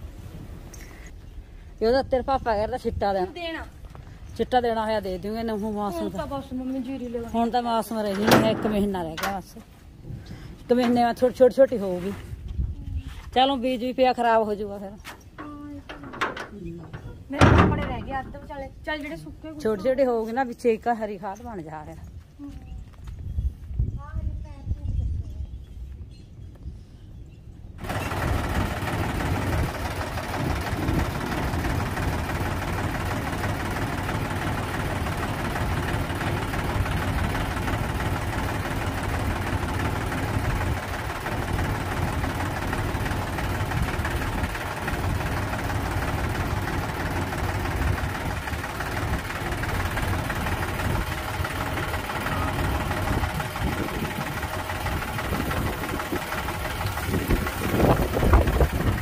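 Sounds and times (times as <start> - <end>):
diesel tractor engine running: 2.1 - 10.0, 15.2 - 20.2, 27.8 - 59.0.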